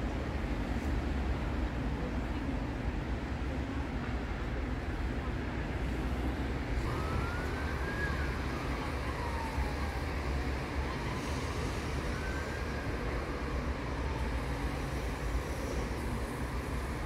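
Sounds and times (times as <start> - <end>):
faint siren wailing: 6.8 - 14.9.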